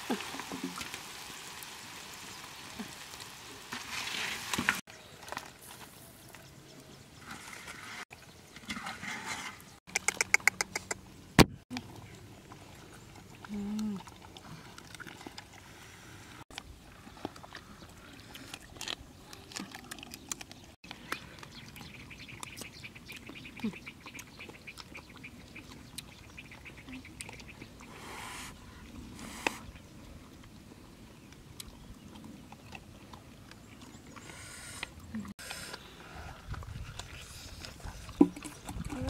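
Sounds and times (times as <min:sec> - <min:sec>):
dogs chewing and smacking: 0:36.5 - 0:39.0.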